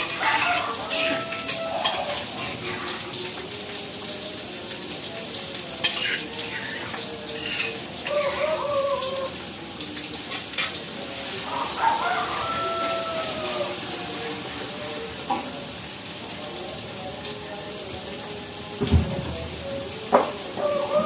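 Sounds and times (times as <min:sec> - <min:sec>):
metal utensils scraping pans: 0:00.0 - 0:03.3, 0:05.8 - 0:08.5, 0:10.1 - 0:11.2
oil sizzling in a wok: 0:00.0 - 0:21.0.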